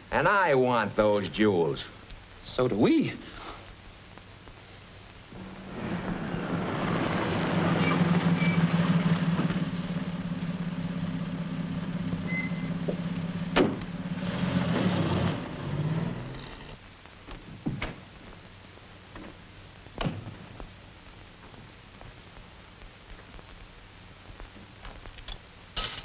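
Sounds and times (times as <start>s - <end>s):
car engine running: 5.3s - 16.8s
car door shutting: 13.5s - 13.9s.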